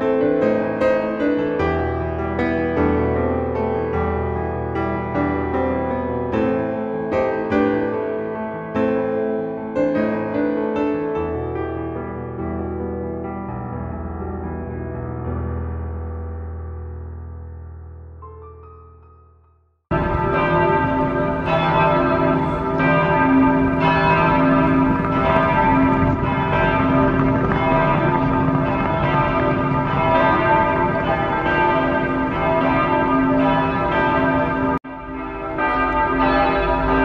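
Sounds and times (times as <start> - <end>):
church bells pealing: 0.0 - 12.4, 19.9 - 37.0.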